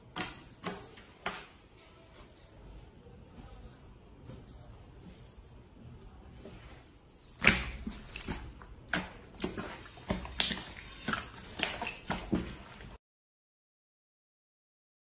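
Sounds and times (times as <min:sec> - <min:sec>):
slime squelching and popping: 0:07.4 - 0:13.0.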